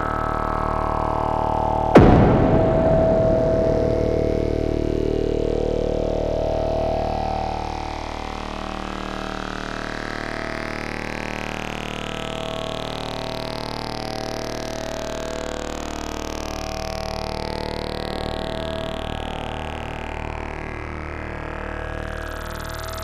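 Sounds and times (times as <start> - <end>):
synthesizer drone with rising sweep: 0.0 - 12.9.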